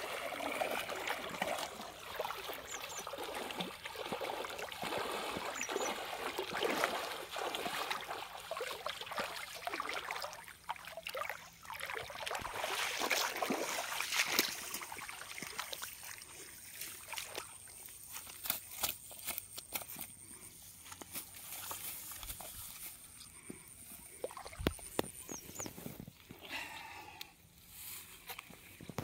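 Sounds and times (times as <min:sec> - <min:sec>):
feet wading through shallow water: 0:00.0 - 0:18.8, 0:21.4 - 0:25.8
rustling in grass: 0:18.0 - 0:24.0.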